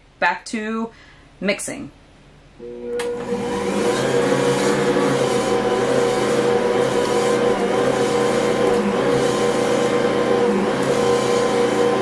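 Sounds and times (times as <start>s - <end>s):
stand mixer humming: 2.6s - 12.0s.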